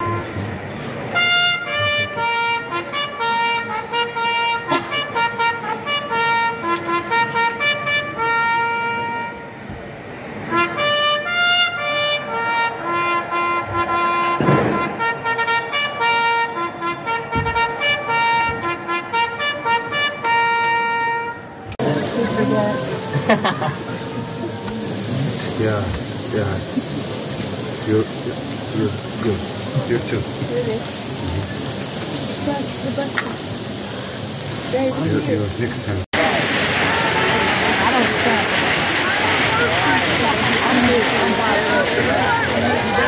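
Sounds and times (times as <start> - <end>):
brass instruments playing melody: 1.0 - 9.7, 10.3 - 43.0
sharp bang: 14.4 - 15.2.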